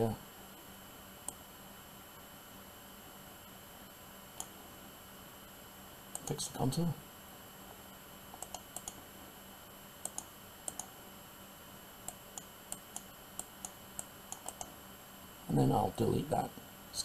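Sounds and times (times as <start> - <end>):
computer mouse clicking: 1.2 - 1.4, 8.3 - 9.0, 10.0 - 10.9, 12.0 - 14.8.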